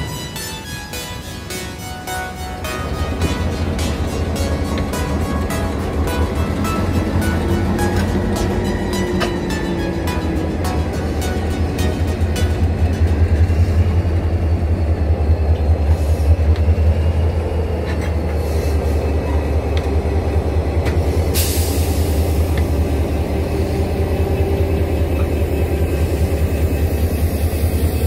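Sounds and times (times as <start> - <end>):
locomotive engine drone: 0.0 - 28.0
hiss: 21.2 - 22.6.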